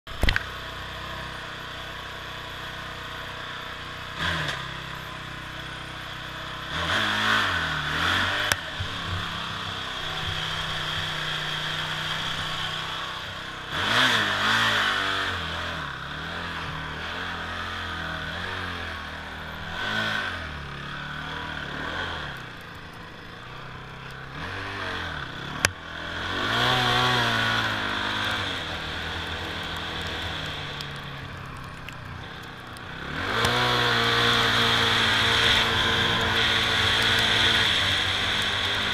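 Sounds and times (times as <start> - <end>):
quad engine revving: 0.2 - 38.9
sharp clicks: 28.2 - 33.6.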